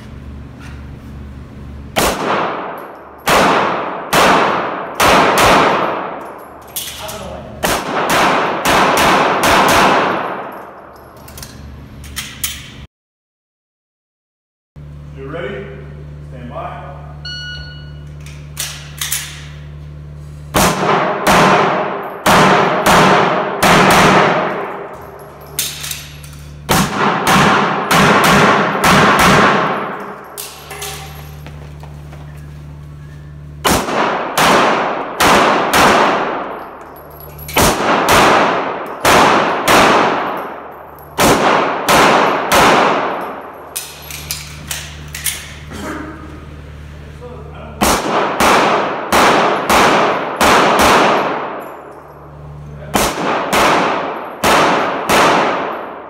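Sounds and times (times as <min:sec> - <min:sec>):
pistol shots echoing indoors: 0:02.0 - 0:11.6, 0:20.5 - 0:31.4, 0:33.6 - 0:45.7, 0:47.8 - 0:56.0.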